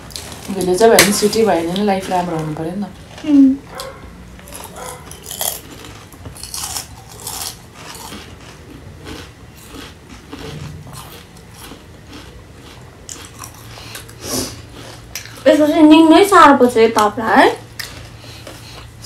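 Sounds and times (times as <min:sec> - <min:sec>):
crunchy chewing: 0:00.0 - 0:15.5, 0:17.7 - 0:19.0.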